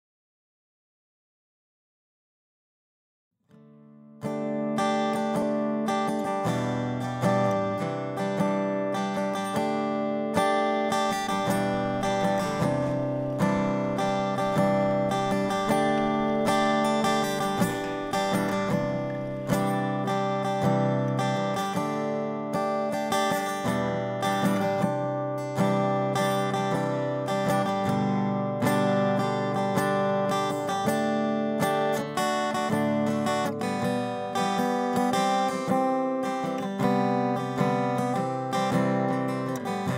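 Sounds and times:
acoustic guitar instrumental: 3.4s - 39.9s.

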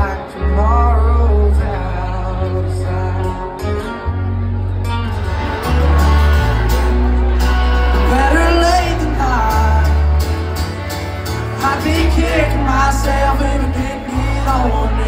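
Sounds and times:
live country band playing: 0.0s - 15.0s
person singing: 7.5s - 15.0s.

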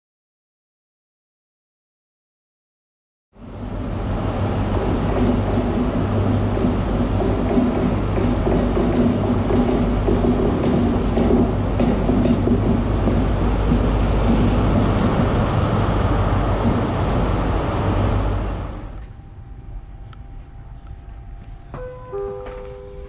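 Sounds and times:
diesel train engines droning: 3.4s - 21.8s.

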